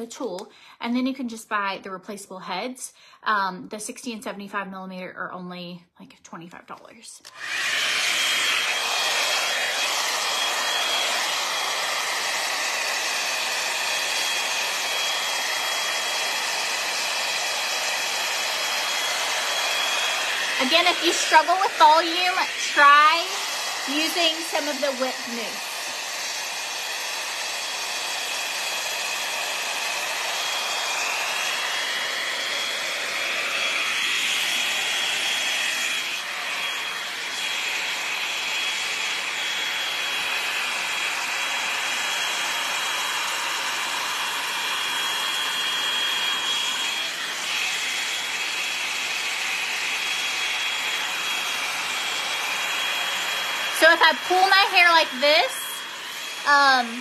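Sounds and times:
hot-air brush blowing: 7.2 - 57.0.

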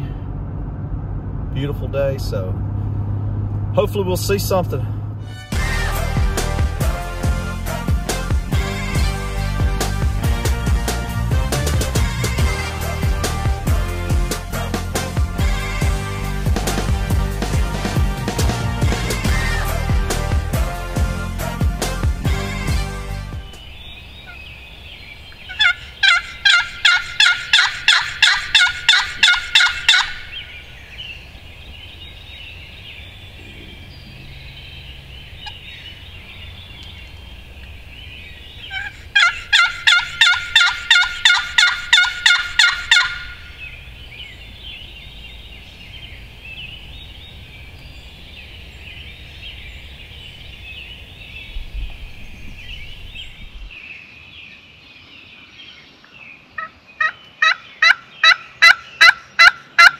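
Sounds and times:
songbirds chorus: 6.8 - 59.9
wild turkey calling: 23.4 - 53.6, 56.6 - 59.9.

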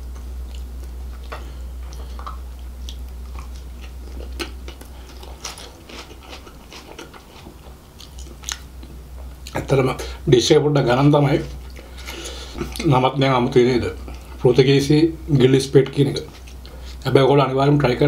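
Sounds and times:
man chewing food: 0.0 - 10.2, 11.4 - 13.0, 13.9 - 14.5, 15.8 - 17.1
low steady hum: 0.0 - 18.0.

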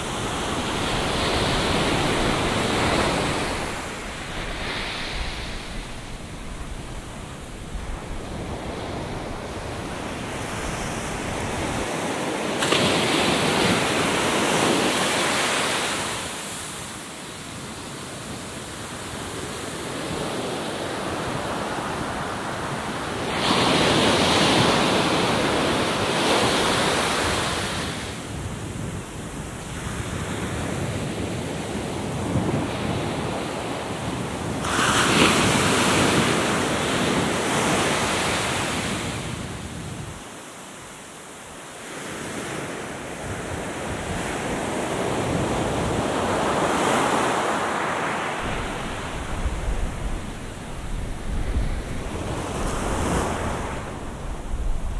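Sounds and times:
wash of surf: 0.0 - 16.4, 34.6 - 39.2, 45.7 - 54.9
waves crashing: 0.0 - 28.3, 32.1 - 54.9.

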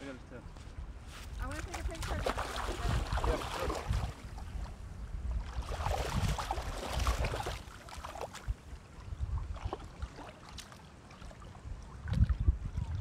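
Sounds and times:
wind buffeting microphone: 0.7 - 9.9, 11.6 - 13.0.

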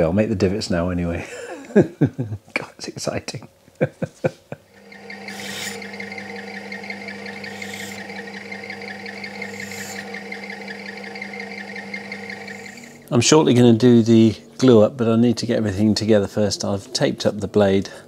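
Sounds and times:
drill press motor humming: 4.7 - 18.0
drill bit cutting hiss: 4.8 - 13.4.

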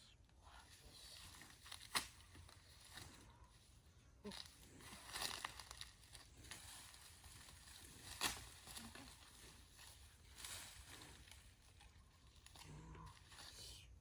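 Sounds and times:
rustling of leafy brush: 0.6 - 14.0
twig cracking: 1.4 - 3.0, 4.3 - 13.4.

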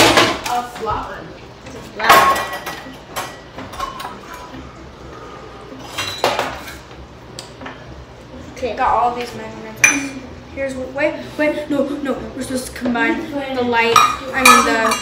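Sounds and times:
kitchenware clinking: 2.0 - 4.6, 5.8 - 6.9, 9.8 - 10.2, 13.8 - 15.0.

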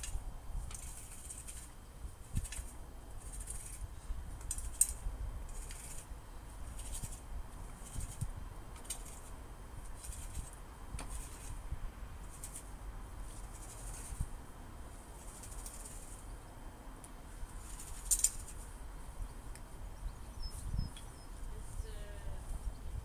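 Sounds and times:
garden tool scraping lawn: 0.0 - 3.9, 5.5 - 11.6, 12.2 - 14.3
low steady rumble: 0.0 - 23.0.

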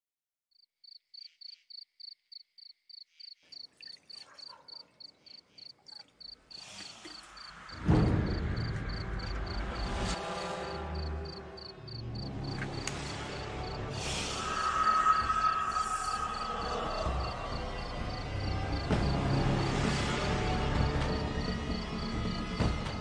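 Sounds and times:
crickets chirping: 0.6 - 23.0
low droning background: 7.5 - 23.0
loud low hit: 7.8 - 10.0
hiss: 12.9 - 17.5.

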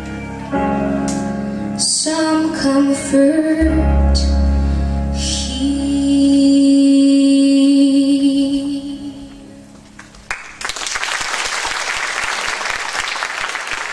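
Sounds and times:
girl singing with vibrato: 1.8 - 9.6
audience applause: 10.0 - 13.9.

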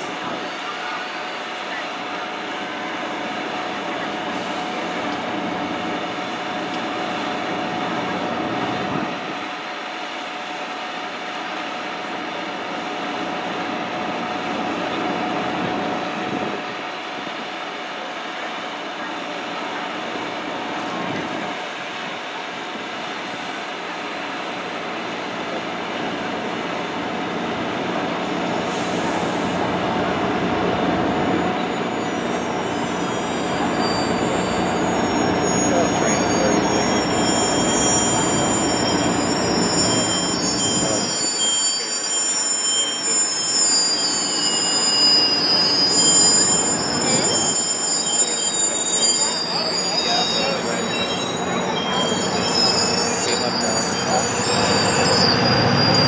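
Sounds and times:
train wheels rumbling on rails: 0.0 - 56.0
high wheel squeal: 23.3 - 56.0
wheels rumbling on rails: 42.7 - 56.0.

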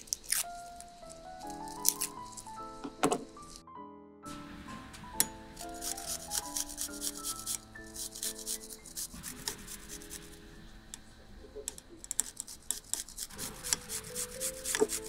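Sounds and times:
background music: 0.0 - 15.0
garlic scraping on grater: 5.6 - 10.2, 12.0 - 15.0.

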